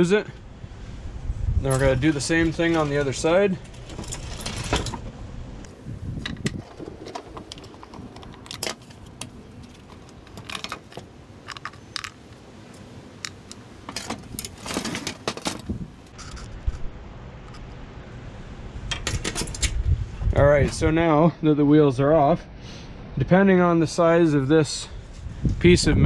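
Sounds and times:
parts clattering on glass table: 0:13.3 - 0:16.5.

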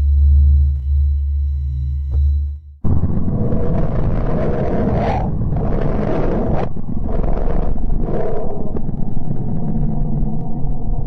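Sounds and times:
deep rumbling roar: 0:02.8 - 0:11.0.

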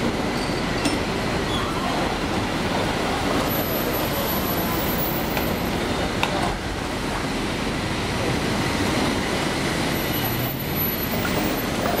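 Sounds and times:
cars driving over tracks: 0:00.0 - 0:12.0.

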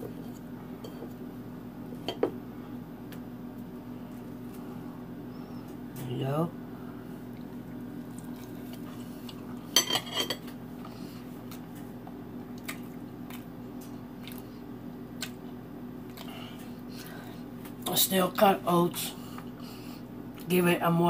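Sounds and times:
steady low hum: 0:00.0 - 0:21.0
person chewing: 0:07.2 - 0:09.7, 0:10.5 - 0:17.8
fork clinking against plate: 0:09.8 - 0:10.5.

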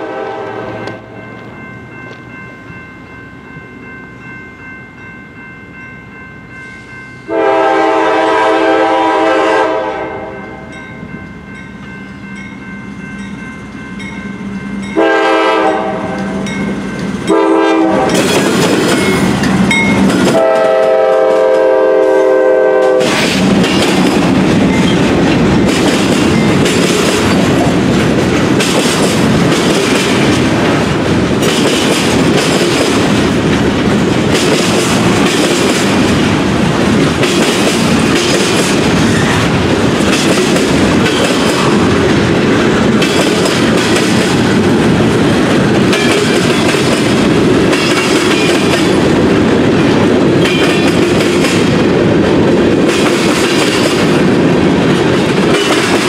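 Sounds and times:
train air horn blasts: 0:00.0 - 0:01.1, 0:07.3 - 0:10.7, 0:15.0 - 0:16.5, 0:17.3 - 0:18.3, 0:20.3 - 0:23.3
freight cars rolling on rails: 0:11.0 - 0:56.0.

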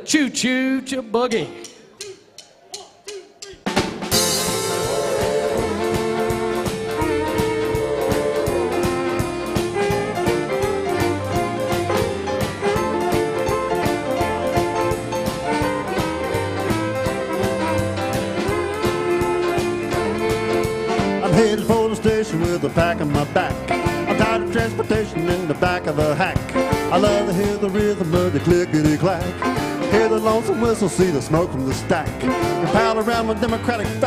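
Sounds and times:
western swing band playing: 0:00.3 - 0:34.0.

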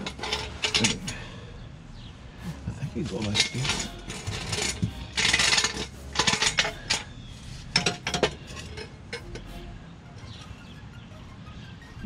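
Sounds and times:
metal exhaust pipe clanking: 0:00.0 - 0:01.5, 0:03.1 - 0:07.1, 0:07.7 - 0:09.6.

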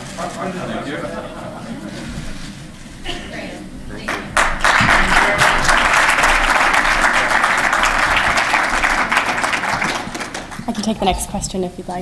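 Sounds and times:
audience applauding: 0:04.0 - 0:11.1.

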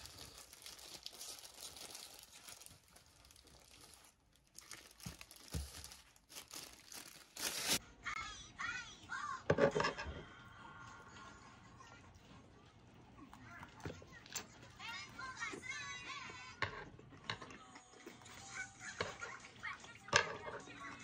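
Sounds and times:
plastic glove crinkling: 0:00.0 - 0:07.8.

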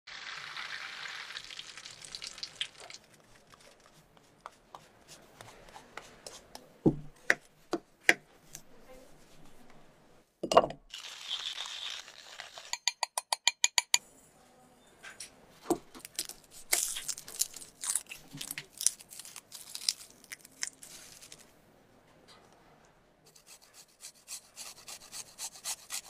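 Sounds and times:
oil sizzling in a frying pan: 0:00.1 - 0:03.0, 0:10.9 - 0:12.8
cheese grating on box grater: 0:23.3 - 0:26.0.

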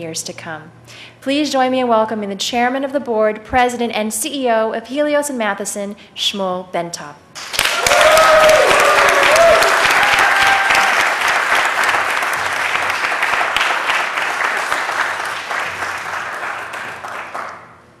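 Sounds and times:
audience applauding: 0:07.4 - 0:17.7.

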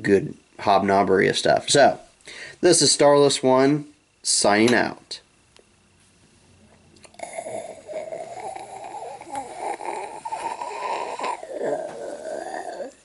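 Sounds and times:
raspy growling groan: 0:07.1 - 0:13.0.

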